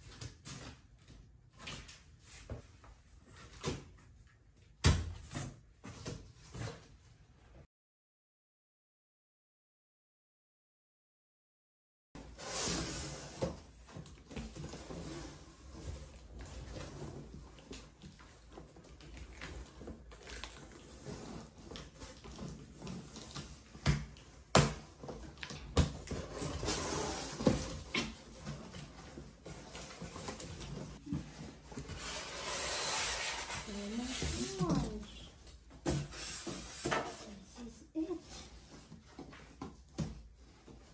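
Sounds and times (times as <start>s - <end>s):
cardboard flaps rustling and scraping: 12.2s - 40.9s
foam packing rustling: 26.0s - 35.3s.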